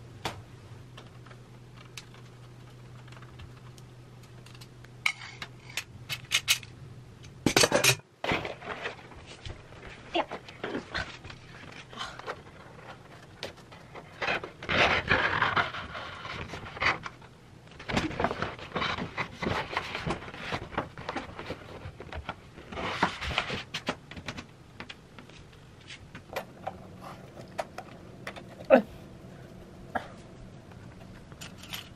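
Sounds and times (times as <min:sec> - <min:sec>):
paper poster rustling: 0:08.2 - 0:24.4.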